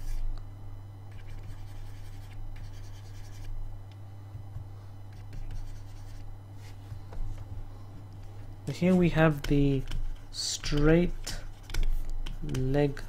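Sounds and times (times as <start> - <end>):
low hum: 0.0 - 13.0
stylus scratching tablet: 1.1 - 3.6, 5.1 - 6.8, 8.8 - 13.0.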